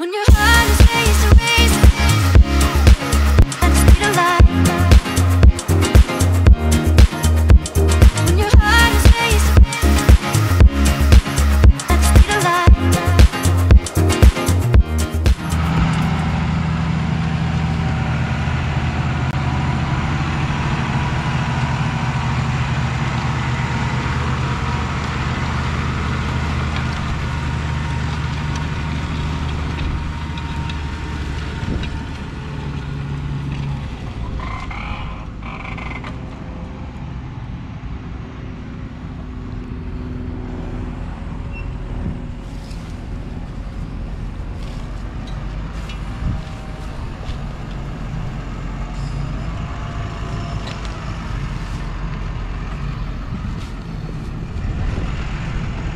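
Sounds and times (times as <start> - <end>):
tractor diesel engine: 0.0 - 55.9.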